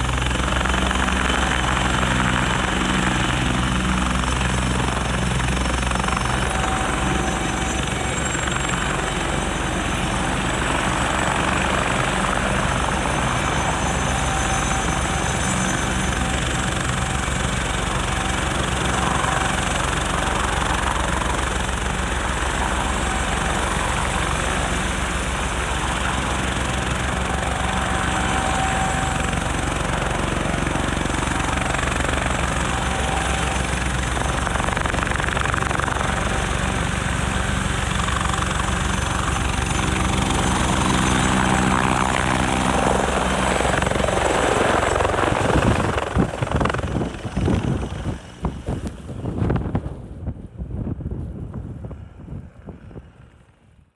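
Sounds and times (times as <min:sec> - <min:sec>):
helicopter rotor chop: 0:00.0 - 0:53.8
high turbine whine: 0:00.0 - 0:53.9
wind buffeting microphone: 0:38.2 - 0:53.8.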